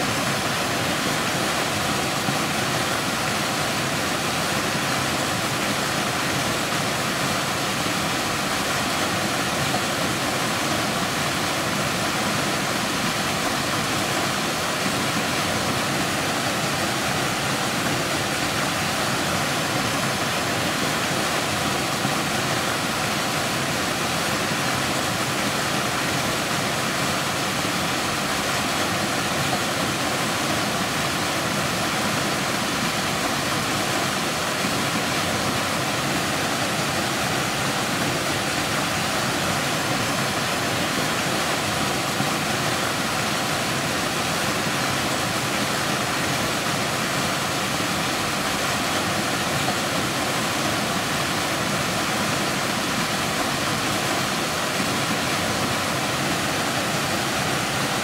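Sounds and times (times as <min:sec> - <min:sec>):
waterfall rushing: 0:00.0 - 0:58.0.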